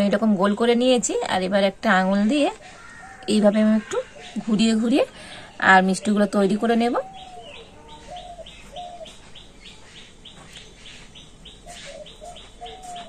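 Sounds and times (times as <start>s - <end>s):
birds chirping: 0.0s - 13.0s
lower short bird calls: 7.0s - 13.0s.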